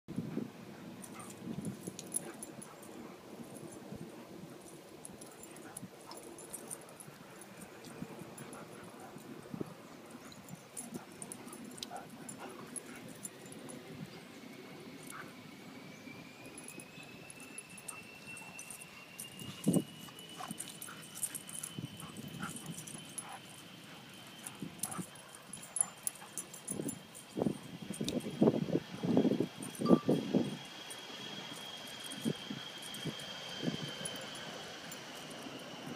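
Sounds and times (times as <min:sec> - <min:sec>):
faint high whine: 0:00.7 - 0:35.9
light clicks and jingles: 0:00.7 - 0:35.9
dogs whimpering: 0:17.7 - 0:26.9.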